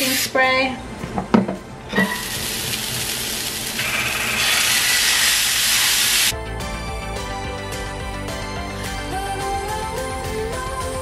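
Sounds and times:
food sizzling in a frying pan: 0:02.0 - 0:06.3
background music: 0:06.3 - 0:11.0.

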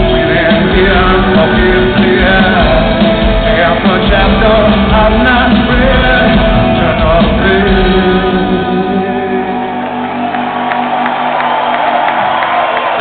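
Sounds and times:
man singing: 0:00.0 - 0:10.1
live rock band playing: 0:00.0 - 0:13.0
crowd shouting: 0:09.5 - 0:13.0.

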